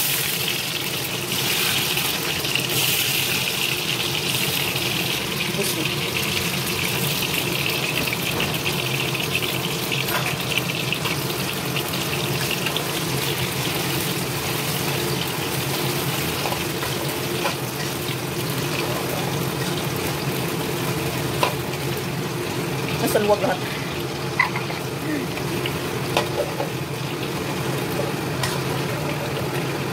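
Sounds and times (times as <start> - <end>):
food deep-frying in oil: 0.0 - 29.9.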